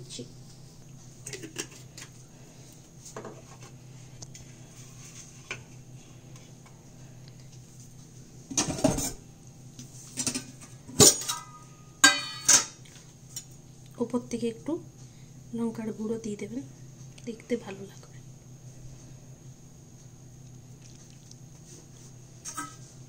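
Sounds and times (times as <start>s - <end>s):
low steady hum: 0.0s - 23.0s
steel dishes clattering: 10.2s - 12.8s.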